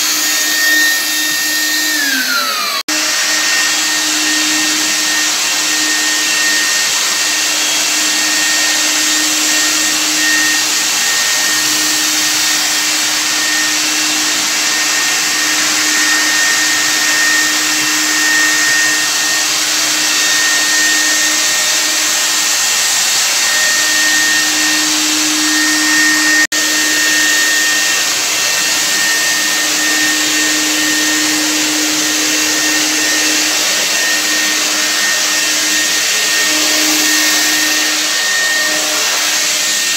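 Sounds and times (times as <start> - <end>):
fogger blower motor hissing: 0.0 - 39.9.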